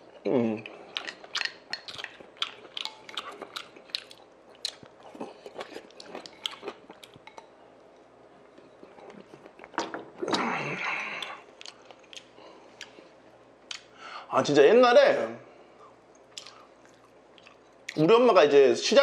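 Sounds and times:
person chewing with wet smacks: 0.0s - 7.5s, 8.4s - 13.9s, 16.1s - 18.0s.

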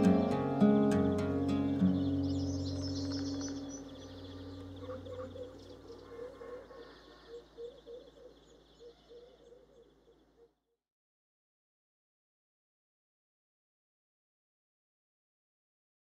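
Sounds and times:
soft music: 0.0s - 5.4s
birds chirping: 0.0s - 10.5s.

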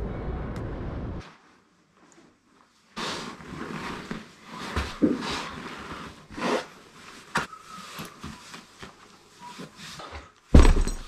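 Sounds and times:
heavy canvas rustling and scraping: 2.4s - 11.0s.

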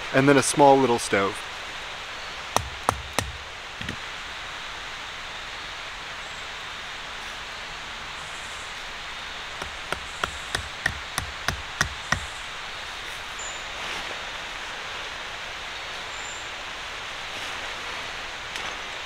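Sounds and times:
steady background hiss: 0.0s - 19.0s
wood knocking tent stake: 2.6s - 4.0s, 9.6s - 12.5s.

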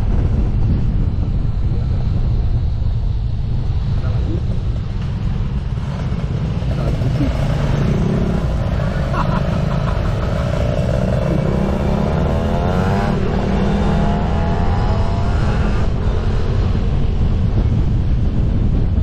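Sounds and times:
wind rumble on microphone: 0.0s - 19.0s
motorcycle engine accelerating: 4.0s - 19.0s.

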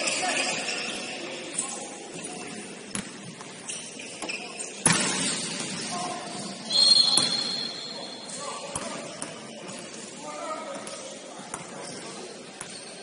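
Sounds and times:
referee's whistle blast: 6.6s - 8.2s.

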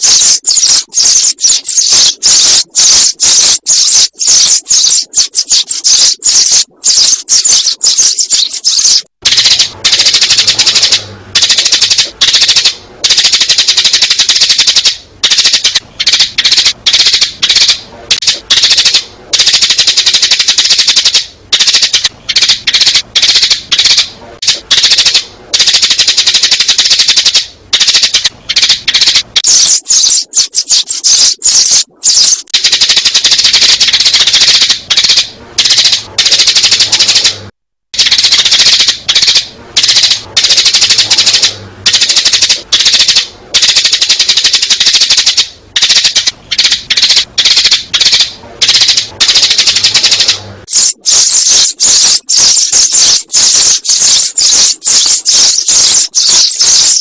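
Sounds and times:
sparrows chirping: 0.0s - 11.7s, 28.5s - 32.5s, 50.7s - 57.0s.

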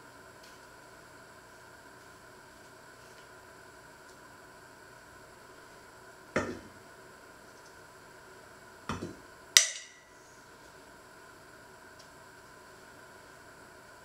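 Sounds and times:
stone clinking into metal bowl: 9.6s - 10.1s.

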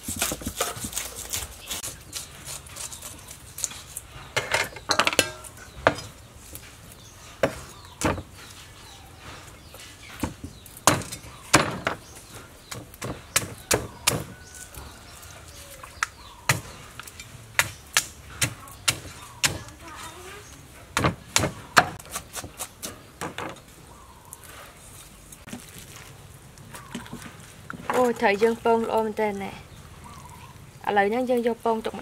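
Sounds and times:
knife chopping on wooden board: 12.7s - 14.4s, 21.0s - 23.5s.

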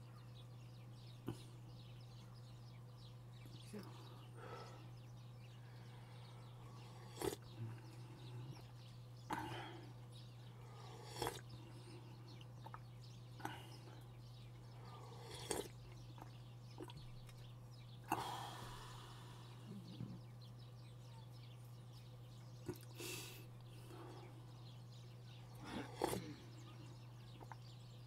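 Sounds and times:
steady low hum: 0.0s - 28.0s
mouth smacks while eating: 11.0s - 11.5s, 15.3s - 17.4s, 22.6s - 23.7s, 25.5s - 26.4s, 27.4s - 27.7s.

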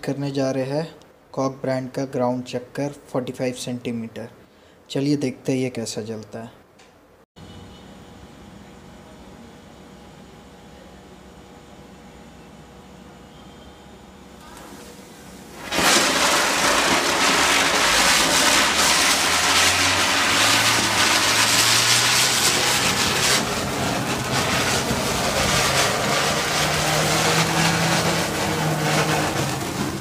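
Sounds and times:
spinning firework hissing: 14.6s - 30.0s.

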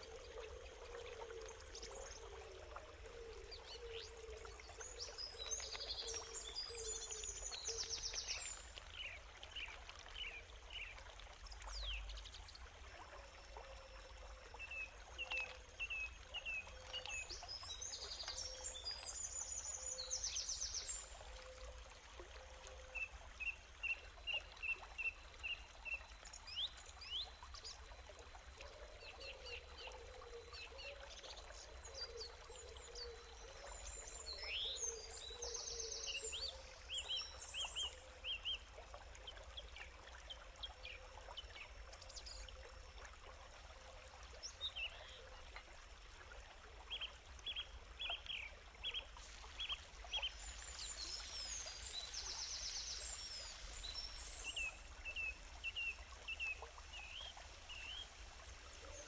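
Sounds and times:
bird warbling song: 46.9s - 59.0s.

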